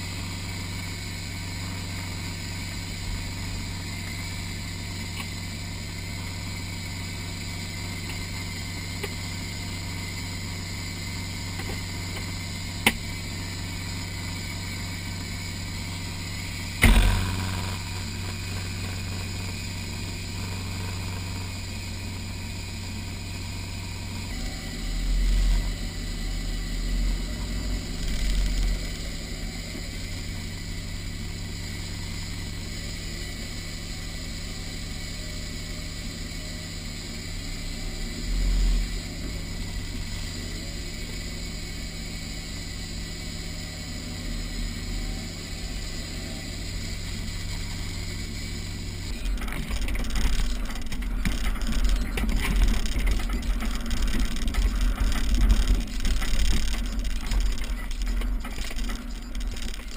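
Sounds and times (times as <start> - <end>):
vehicle engine running: 0.0 - 59.9
vehicle knocks and rattles: 49.1 - 59.9.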